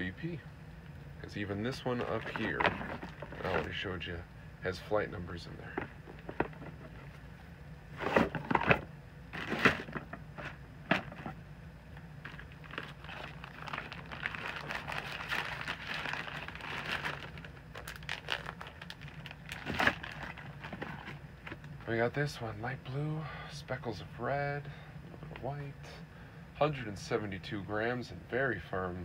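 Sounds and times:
plastic bag crinkling: 1.9s - 3.8s, 12.2s - 21.7s.

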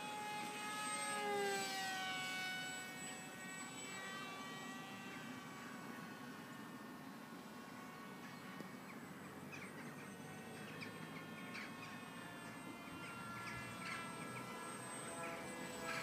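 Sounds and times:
high whine of held tones: 0.0s - 16.0s
small birds chirping: 8.2s - 12.0s.

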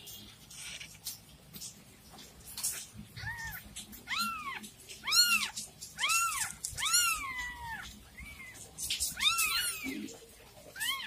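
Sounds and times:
kittens mewing: 3.1s - 11.0s.

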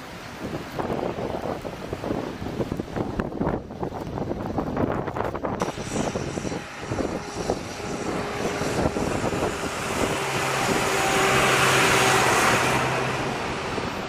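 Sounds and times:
wind buffeting microphone: 0.0s - 14.0s
tractor engine drone: 5.4s - 14.0s
rushing hiss: 5.6s - 13.1s.

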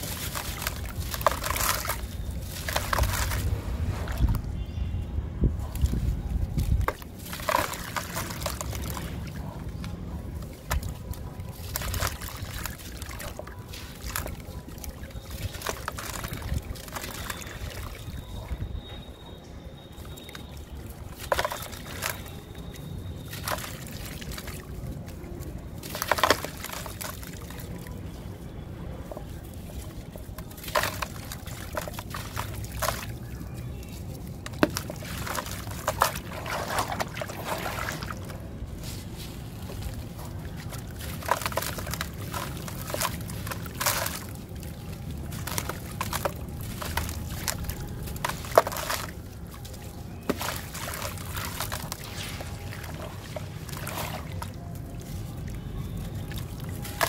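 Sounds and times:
grit splashing into water: 0.0s - 4.5s, 5.7s - 18.6s, 19.9s - 28.3s, 29.0s - 57.0s
gritty slabs crunching in hands: 34.4s - 44.5s.

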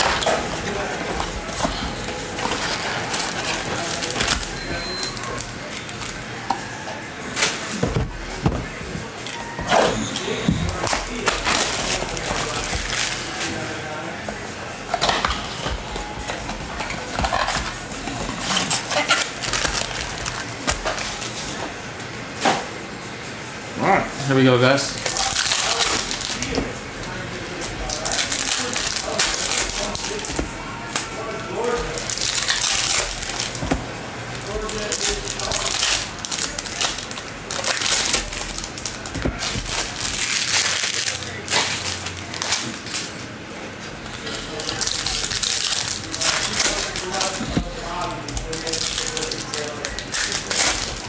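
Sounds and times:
foil packs crinkling: 0.0s - 21.8s, 24.3s - 43.4s, 44.0s - 51.0s.

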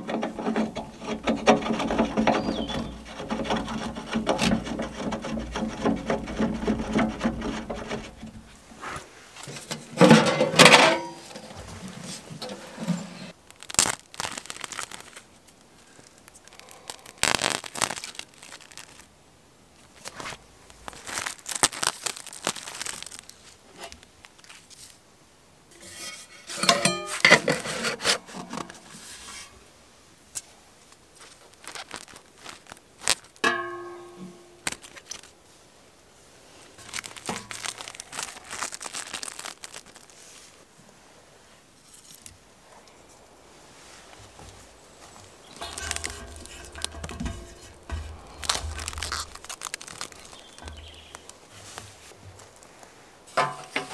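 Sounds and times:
cling film crinkling and tearing: 0.0s - 8.6s, 13.3s - 19.2s, 19.8s - 25.0s, 31.1s - 33.4s, 34.6s - 35.4s, 36.8s - 40.6s, 44.6s - 53.0s
metal pipes scraping and clanking: 0.0s - 13.3s, 25.7s - 29.6s, 45.5s - 50.0s.

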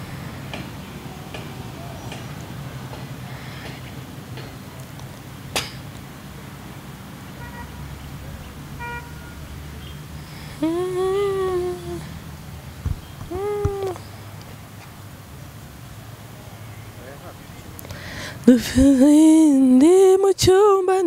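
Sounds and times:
steady low hum: 7.9s - 14.7s
long rising vocal note: 10.4s - 12.2s.

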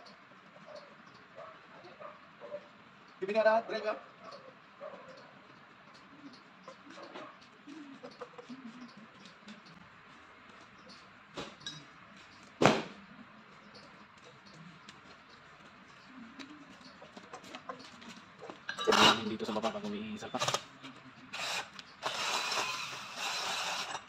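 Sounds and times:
knocks on board: 12.6s - 13.0s
screwdriver clicks and scrapes: 21.4s - 24.0s.

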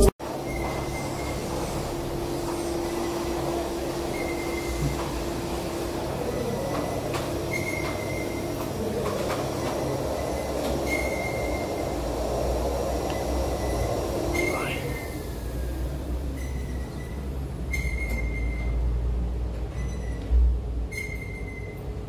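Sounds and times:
faint high squeak: 6.3s - 8.4s, 10.8s - 11.6s, 13.6s - 15.1s, 16.4s - 18.8s, 19.7s - 20.3s, 20.9s - 21.8s.

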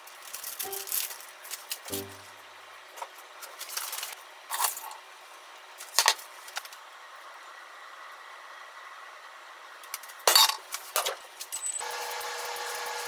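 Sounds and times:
soft background music notes: 0.6s - 1.0s, 1.9s - 2.4s.

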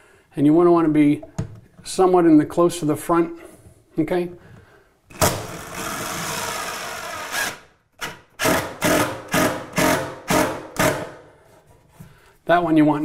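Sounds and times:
cordless drill driving screw: 5.2s - 10.0s.

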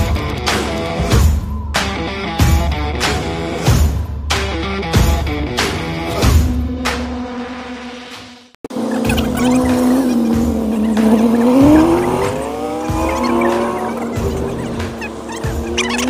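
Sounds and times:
background music with steady beat: 0.0s - 8.4s, 9.2s - 16.0s
car engine pulling away: 8.7s - 16.0s.

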